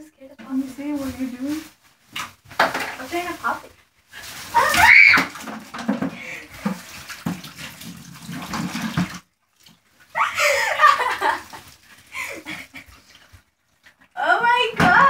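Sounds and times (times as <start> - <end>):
rubbing and handling noise: 0.0 - 9.0
water sloshing: 0.5 - 15.0
girl laughing loudly: 10.2 - 11.6.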